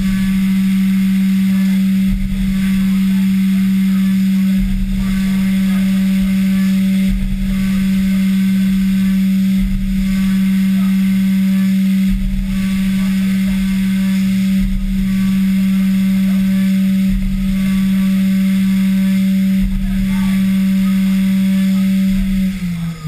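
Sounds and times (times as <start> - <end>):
coolant spray hiss: 0.0 - 23.0
mill spindle whine cutting metal: 0.0 - 23.0.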